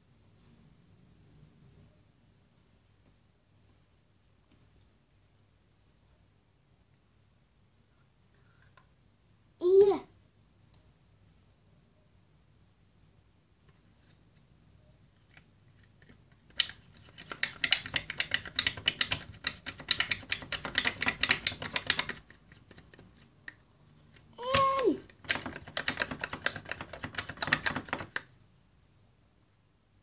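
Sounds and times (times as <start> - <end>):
person humming: 24.4 - 25.0.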